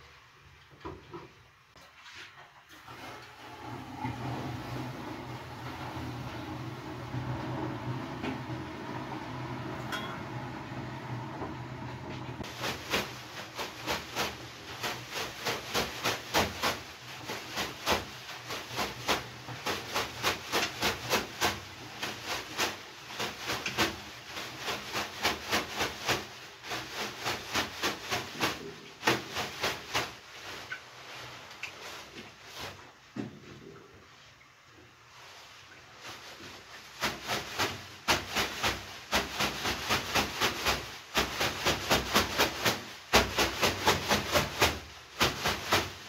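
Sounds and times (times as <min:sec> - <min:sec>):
leafy broom slapping on body: 0:12.4 - 0:33.1, 0:35.1 - 0:46.0.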